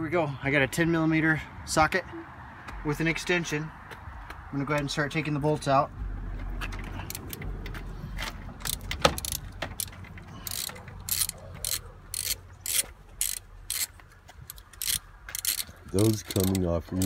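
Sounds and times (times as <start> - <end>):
socket ratchet clicking: 7.1 - 7.5, 8.2 - 17.0.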